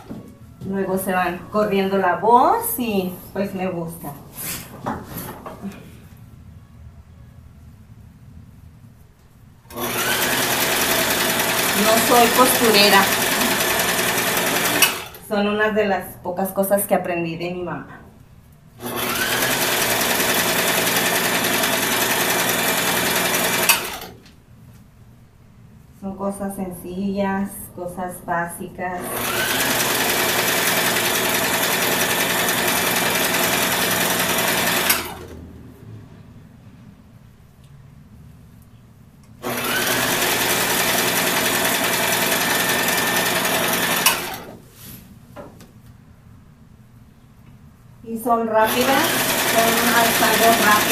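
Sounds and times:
sewing machine running: 9.7 - 15.2, 18.8 - 24.1, 29.0 - 35.4, 39.4 - 44.6, 48.6 - 50.9.

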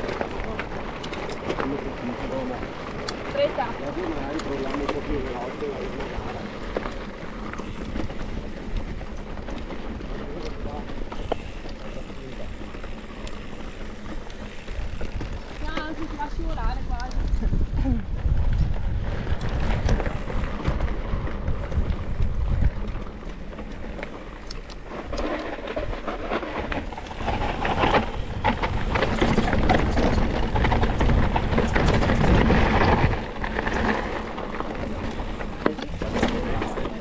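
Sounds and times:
bicycle rattles and knocks: 0.0 - 37.0
bicycle tyre noise on dirt: 0.0 - 37.0
wind buffeting microphone: 0.0 - 37.0.

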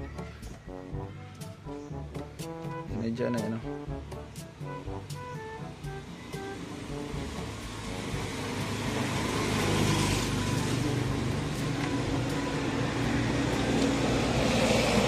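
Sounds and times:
vehicle engine running: 5.8 - 15.0.

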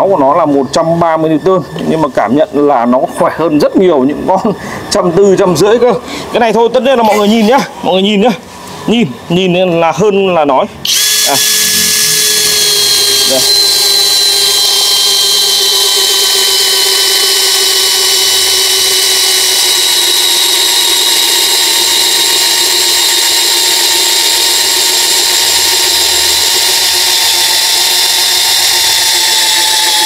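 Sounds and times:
cordless drill boring into log: 10.8 - 30.0.

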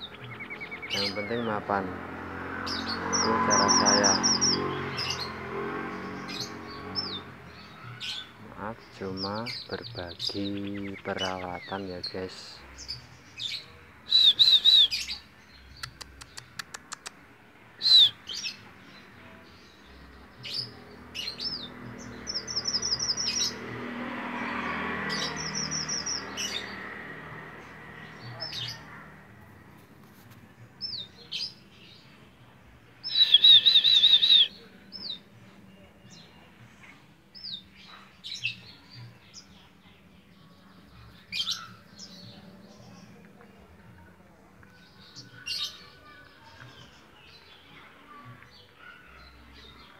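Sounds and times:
broad background noise: 0.0 - 49.9
finches chirping: 2.6 - 16.6, 17.8 - 23.6.

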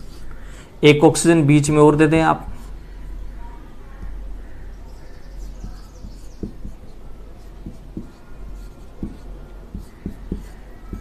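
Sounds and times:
marker pen writing on a board: 5.0 - 11.0.

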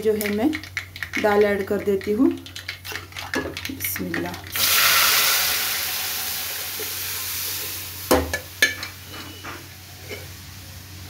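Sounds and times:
dal sizzling in hot oil: 4.4 - 11.0.

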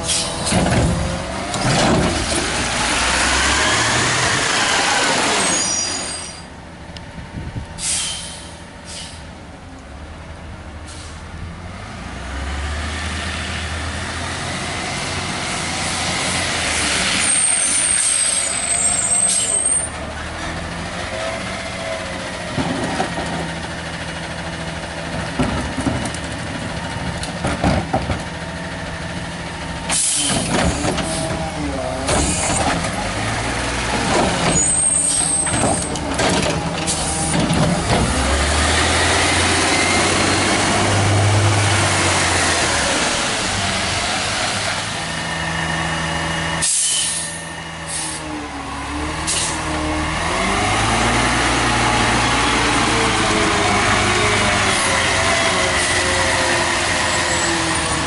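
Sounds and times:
air brakes hissing: 0.0 - 0.6, 7.8 - 9.4, 10.8 - 11.3, 17.2 - 19.9, 29.9 - 31.4, 36.9 - 37.4, 46.6 - 48.3, 49.3 - 49.6
whining hydraulics: 1.5 - 6.5, 16.2 - 20.1, 33.9 - 41.6
garbage truck engine running: 17.8 - 58.0
cart knocking and clanking: 22.4 - 23.6, 25.1 - 28.5, 33.8 - 38.3.

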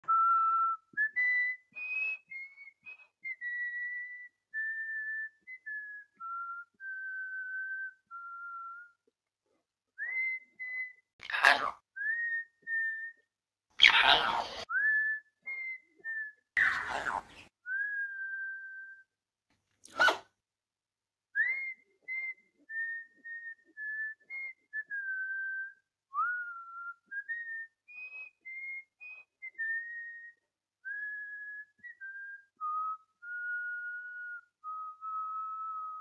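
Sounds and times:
parrot whistling a tune: 0.0 - 9.0, 10.0 - 11.0, 12.0 - 13.2, 13.8 - 19.1, 21.4 - 36.0
parrot harsh squawks: 11.2 - 11.8, 13.8 - 14.7, 16.6 - 17.5, 19.9 - 20.3.

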